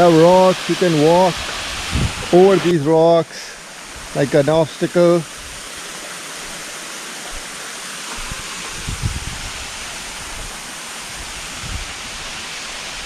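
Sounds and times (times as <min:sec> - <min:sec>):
waterfall and stream rushing: 0:00.0 - 0:13.0.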